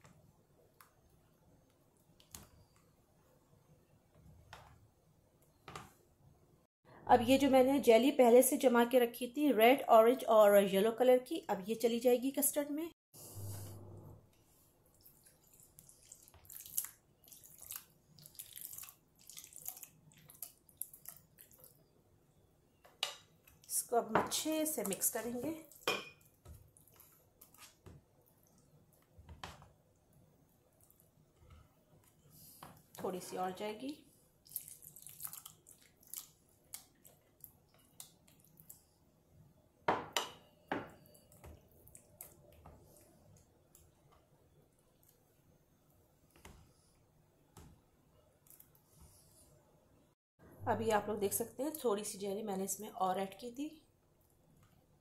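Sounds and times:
jelly squelching into custard: 14.9s - 21.9s, 34.4s - 38.9s.

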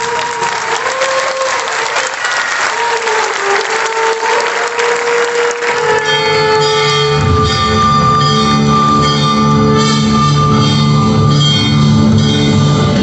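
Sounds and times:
audience applauding: 0.0s - 7.2s
music with bell-like tones: 5.3s - 13.0s.

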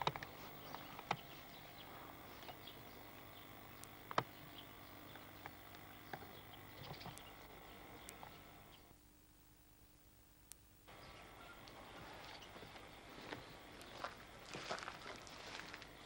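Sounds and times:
steady hum: 0.0s - 16.0s
small clicks and taps: 2.4s - 7.4s.

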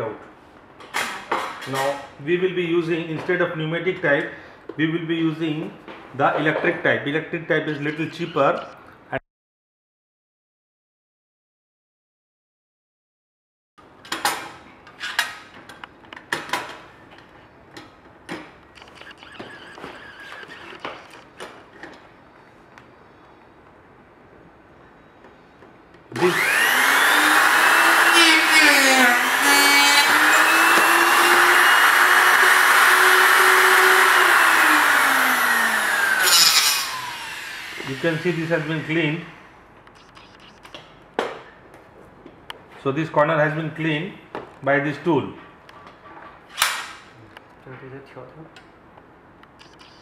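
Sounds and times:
electric cutting tool whining: 26.2s - 39.0s.

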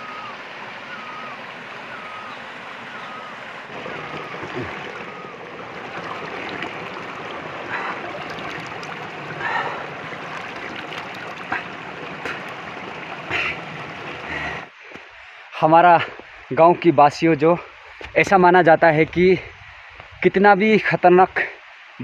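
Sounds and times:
stream rushing over rocks: 0.0s - 14.7s.

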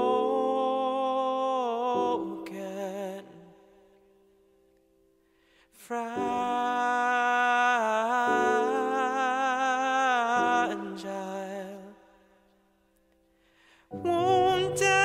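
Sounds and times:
breath: 5.2s - 5.8s, 13.3s - 13.9s
man singing held note: 13.9s - 15.0s.

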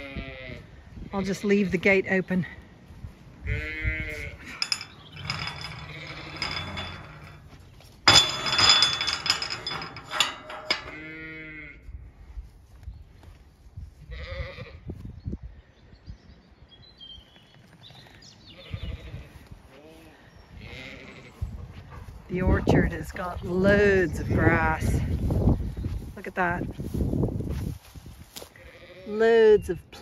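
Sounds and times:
sheep and lambs bleating: 0.0s - 0.7s, 3.4s - 4.6s, 14.1s - 14.8s, 18.5s - 21.4s, 28.5s - 29.4s
metal gate clanking and rattling: 3.6s - 11.7s.

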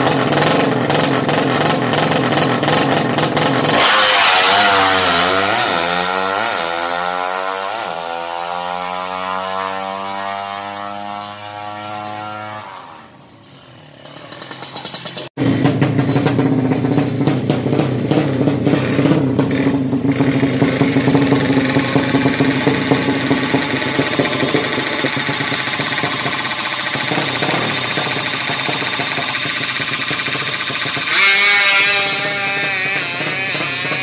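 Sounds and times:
motorcycle engine idling unevenly: 0.0s - 5.7s, 13.8s - 34.0s
engine revving: 0.0s - 34.0s.

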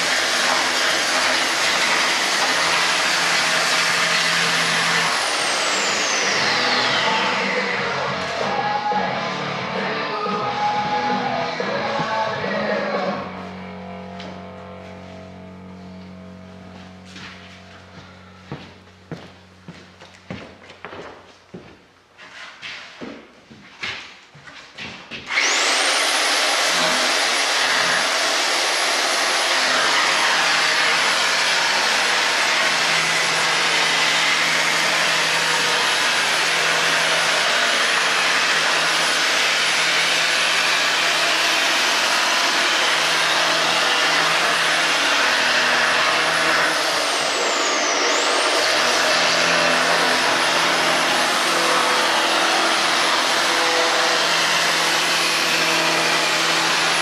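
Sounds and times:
belt sander sanding wood: 0.0s - 8.8s, 25.3s - 57.0s.

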